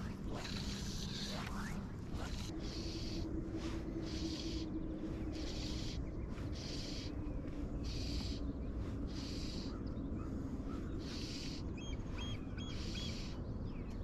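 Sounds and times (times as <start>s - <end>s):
fly line swishing through air: 0.0s - 9.7s
bird chirping: 0.0s - 14.0s
low rumble: 0.0s - 14.0s.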